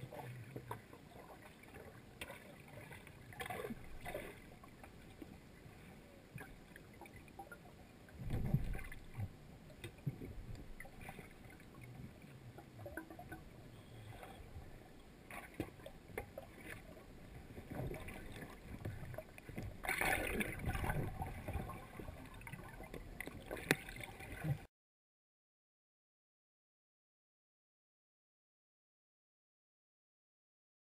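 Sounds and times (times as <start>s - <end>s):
muffled underwater noise: 11.0s - 15.7s.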